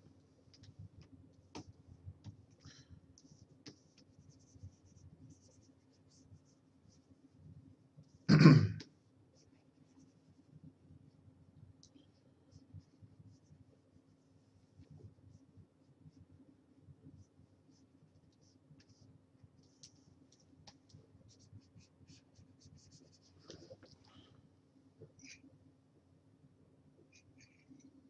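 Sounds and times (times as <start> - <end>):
low steady hum: 0.0 - 28.0
man clearing throat: 8.3 - 8.8.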